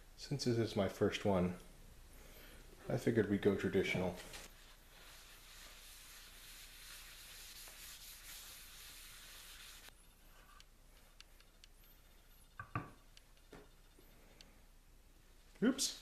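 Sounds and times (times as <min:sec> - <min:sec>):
cloth rubbing wood: 0:04.2 - 0:10.6.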